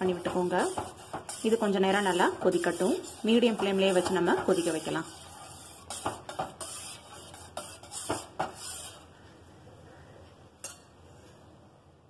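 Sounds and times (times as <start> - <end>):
ladle scraping a saucepan: 0.0 - 9.2.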